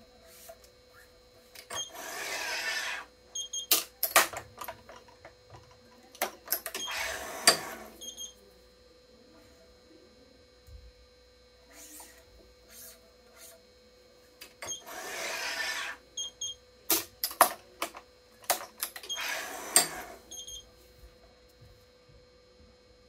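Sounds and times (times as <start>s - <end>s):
string being pulled through racket: 2.0s - 3.1s, 14.9s - 16.0s.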